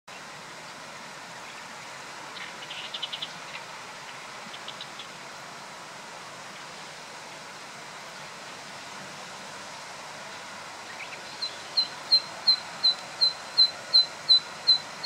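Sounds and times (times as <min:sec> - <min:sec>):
steady hiss: 0:00.1 - 0:15.0
bird ticking calls: 0:10.9 - 0:14.9.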